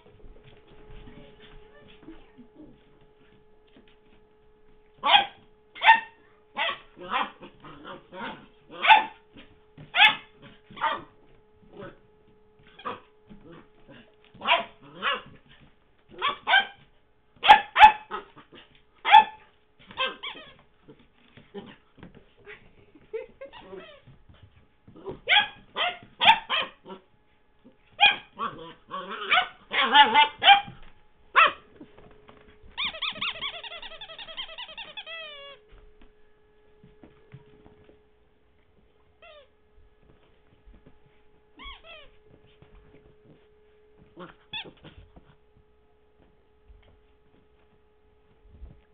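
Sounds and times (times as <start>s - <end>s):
rubber squeaky toy squeaking: 32.8s - 35.6s, 41.6s - 42.1s.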